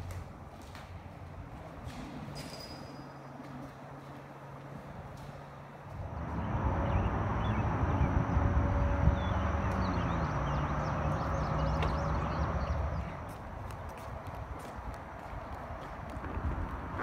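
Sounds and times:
wind buffeting microphone: 4.7 - 17.0.

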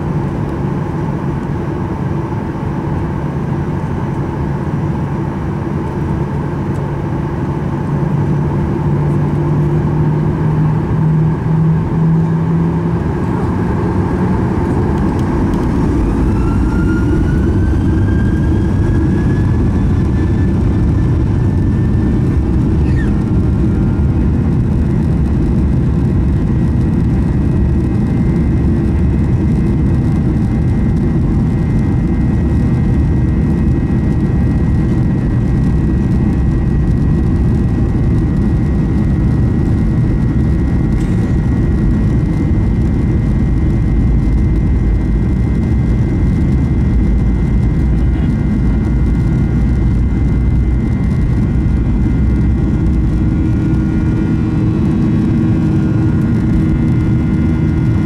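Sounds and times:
high fan whine: 0.0 - 58.0
jet engines rumbling: 0.0 - 58.0.

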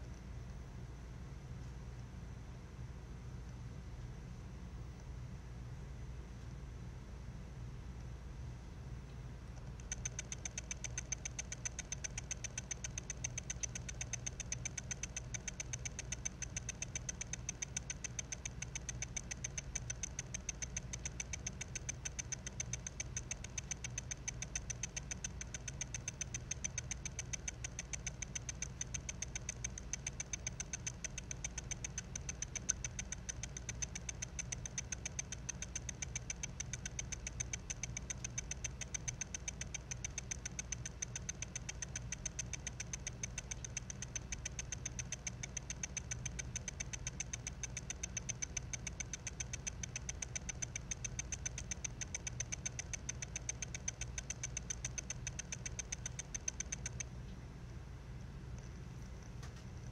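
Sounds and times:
hard drive ticking: 0.0 - 0.4, 9.4 - 57.4, 58.5 - 59.9.

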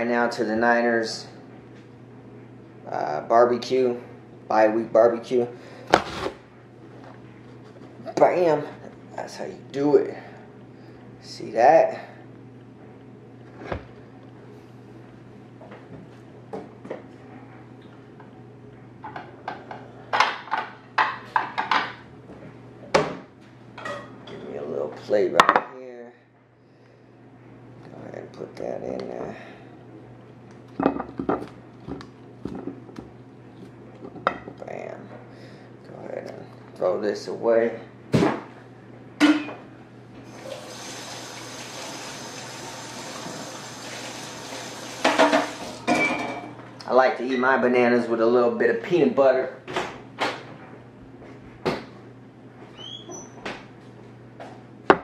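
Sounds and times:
tap water running: 40.2 - 45.9
dishes clinking and clattering: 45.0 - 46.6.

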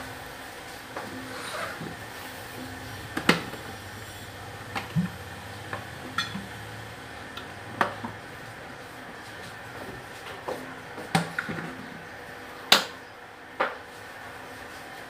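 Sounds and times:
steady low hum: 0.0 - 11.0
thermos lid clinking: 5.7 - 6.5.

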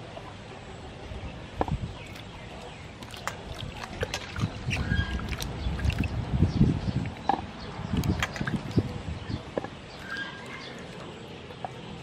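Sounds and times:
water sloshing in metal bowl: 1.9 - 7.3, 7.9 - 11.9.

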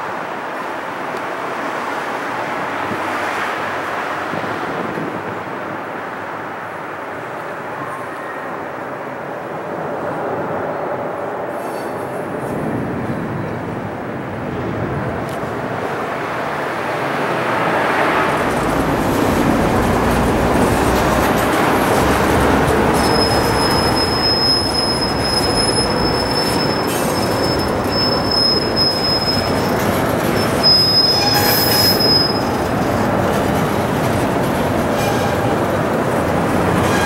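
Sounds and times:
freight cars rumbling: 8.6 - 37.0
high wheel squeal: 22.7 - 32.6, 36.8 - 37.0.

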